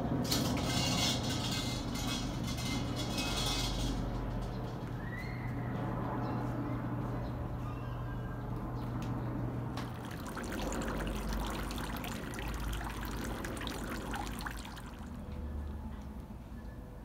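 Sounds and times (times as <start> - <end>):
water trickling into a basin: 9.8 - 16.0.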